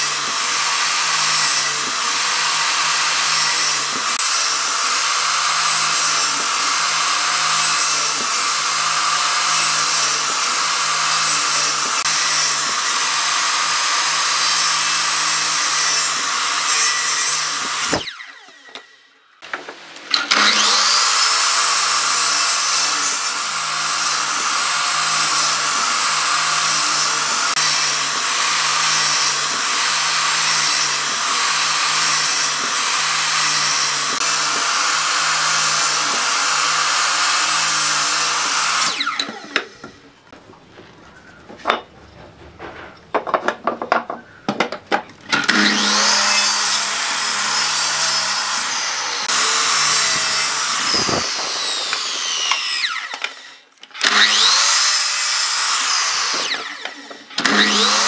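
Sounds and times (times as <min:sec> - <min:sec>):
miter saw cutting wood: 0:00.0 - 0:40.3, 0:45.3 - 0:58.0.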